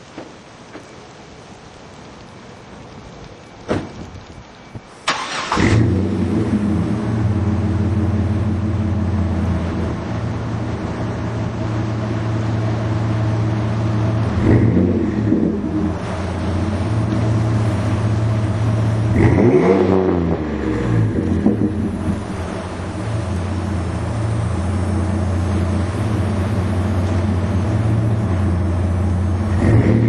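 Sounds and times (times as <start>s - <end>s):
engine cranking: 5.1s - 6.3s
engine idling with deep exhaust: 5.7s - 30.0s.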